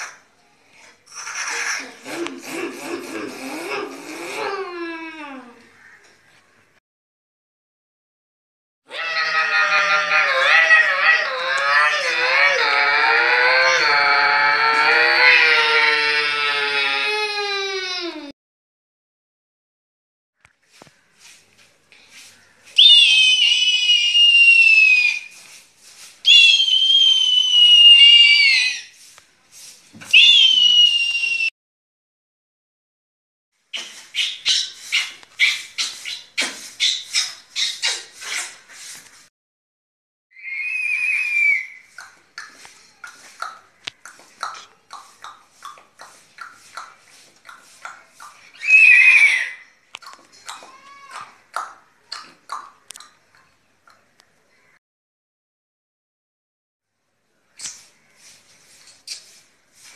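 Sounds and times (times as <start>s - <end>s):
boy imitating eagle screech: 1.1s - 5.5s, 8.9s - 18.3s, 22.8s - 25.3s, 26.3s - 29.0s, 30.1s - 31.5s, 40.4s - 41.9s, 48.6s - 49.6s.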